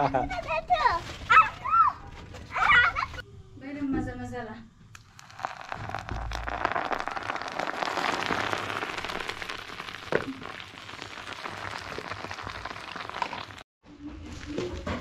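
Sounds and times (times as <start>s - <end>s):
hot oil sizzling and crackling: 5.0s - 13.7s.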